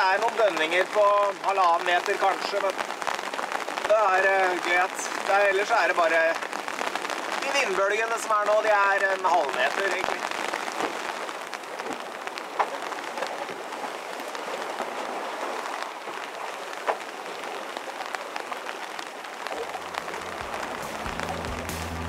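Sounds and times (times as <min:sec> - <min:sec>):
rain pattering on canvas: 0:00.0 - 0:22.0
low music: 0:19.7 - 0:22.0.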